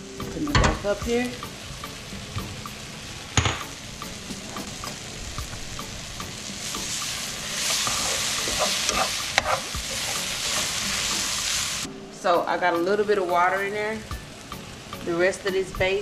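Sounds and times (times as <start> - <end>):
food sizzling in a skillet: 0.0 - 12.0, 12.6 - 16.0
metal spoon stirring and scraping: 7.0 - 11.2.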